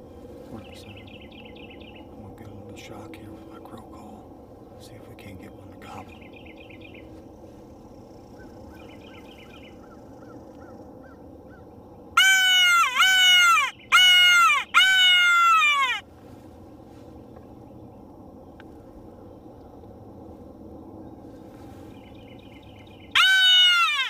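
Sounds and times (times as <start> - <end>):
crow call caws: 12.2 - 16.1, 23.1 - 24.0.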